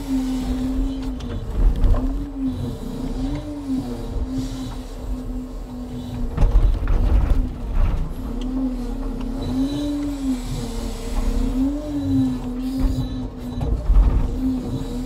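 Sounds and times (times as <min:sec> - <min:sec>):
hydraulic pump whine: 0:00.0 - 0:15.0
logs knocking and clunking: 0:06.1 - 0:09.4.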